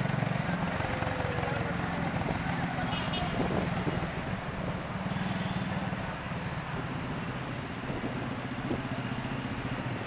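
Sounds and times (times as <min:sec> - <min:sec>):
road noise: 0:00.0 - 0:10.0
wind buffeting microphone: 0:03.2 - 0:04.8, 0:06.6 - 0:09.0.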